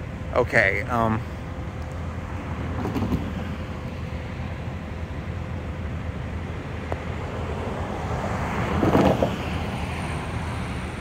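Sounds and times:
distant road traffic rumble: 0.0 - 11.0
vehicle passing: 7.0 - 11.0.

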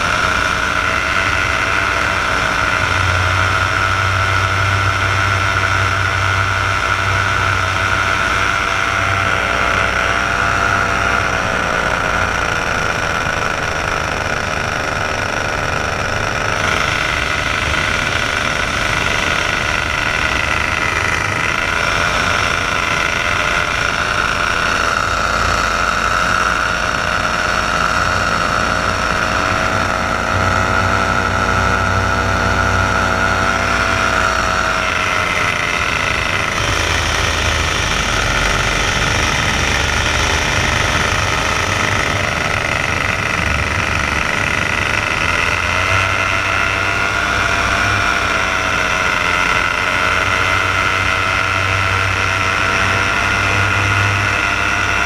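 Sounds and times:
paramotor engine and propeller: 0.0 - 55.0.

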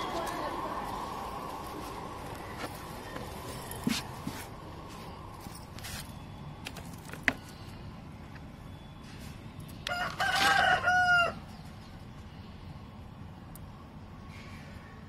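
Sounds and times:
rooster crowing: 9.8 - 11.5.

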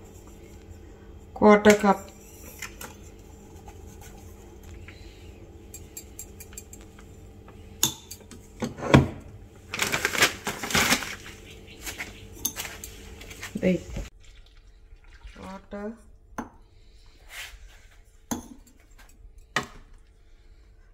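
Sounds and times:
flour packet crinkling: 9.6 - 13.6.

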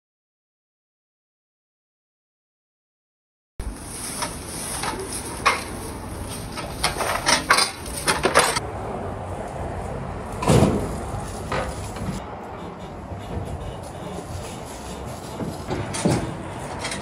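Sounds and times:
hand truck rattling and clacking: 4.1 - 8.6, 10.4 - 12.2, 13.1 - 17.0
loud thud: 10.4 - 11.7
sharp knocks: 15.3 - 17.0.

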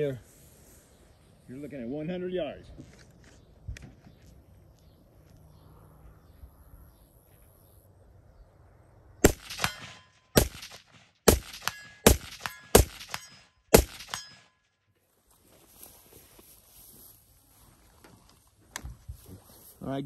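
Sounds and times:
rifle shots: 9.2 - 14.5
bullet clanging on steel target: 11.4 - 14.7.

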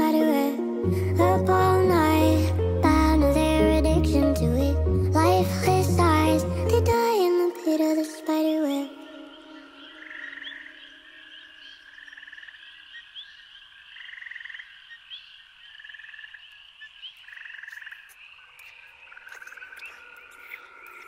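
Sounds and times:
faint high chirping: 8.6 - 21.0
frogs croaking: 9.0 - 21.0.

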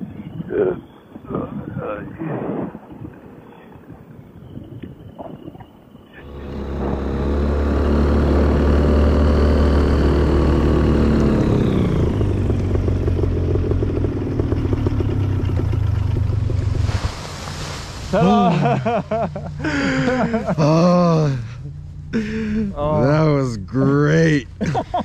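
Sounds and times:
wind noise: 0.0 - 7.5
paramotor engine and propeller: 6.1 - 25.0.

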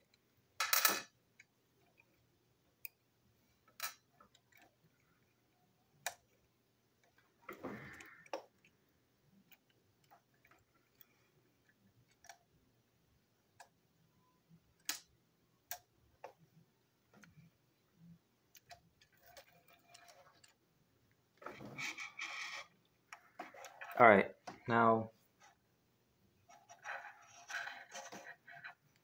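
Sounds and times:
plastic toy parts clicking: 14.8 - 15.1
screwdriver scraping: 21.5 - 24.0, 26.5 - 28.8.

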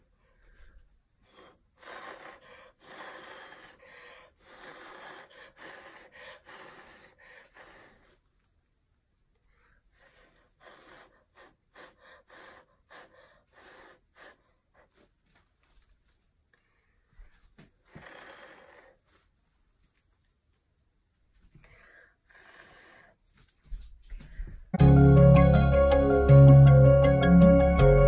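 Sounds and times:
short breath puffs: 0.0 - 8.3, 9.5 - 15.2, 16.6 - 19.3, 21.5 - 23.3, 24.1 - 24.7
person blowing breathy blows: 1.2 - 8.1, 10.0 - 14.5.

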